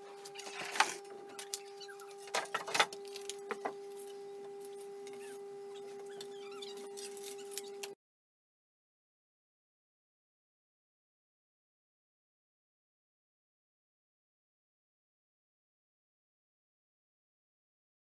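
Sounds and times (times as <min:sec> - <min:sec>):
steady hum: 0:00.0 - 0:08.0.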